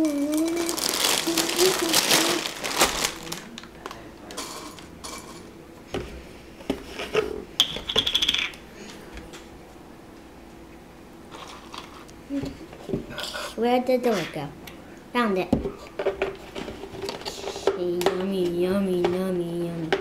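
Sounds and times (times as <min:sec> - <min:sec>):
plastic bag crinkling: 0:00.0 - 0:04.1.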